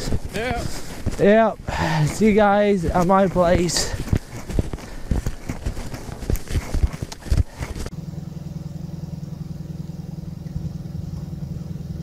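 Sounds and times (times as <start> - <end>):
footsteps crunching in snow: 0.0 - 7.9
vehicle engine running: 0.0 - 12.0.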